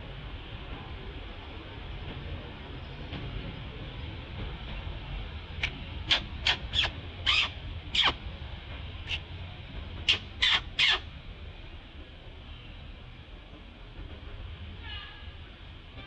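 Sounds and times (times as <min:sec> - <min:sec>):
short harsh animal calls: 0:06.1 - 0:08.2, 0:10.1 - 0:11.0.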